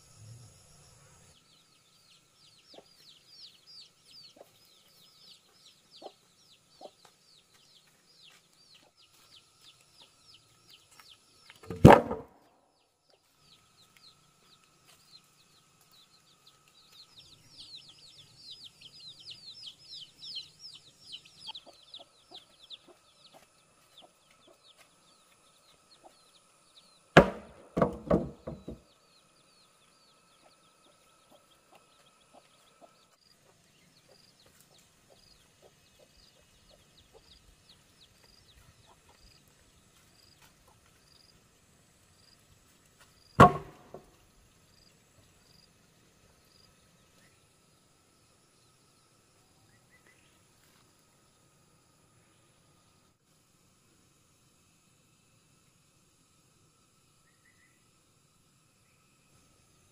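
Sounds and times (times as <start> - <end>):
chickens calling: 4.3 - 5.0, 19.3 - 24.9.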